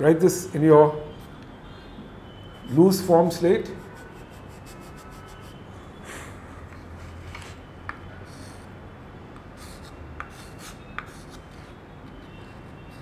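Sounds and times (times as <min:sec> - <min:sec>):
chalk scratching on slate: 0:03.7 - 0:05.6, 0:09.6 - 0:11.8
chalk tapping on slate: 0:09.4 - 0:11.4.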